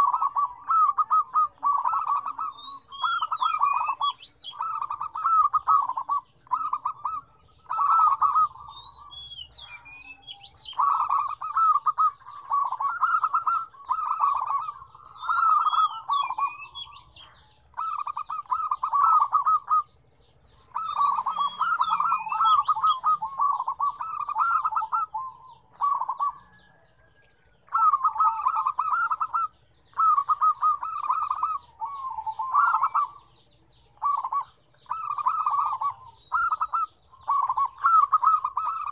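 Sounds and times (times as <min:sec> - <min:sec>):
doves cooing: 0:00.0 - 0:38.9.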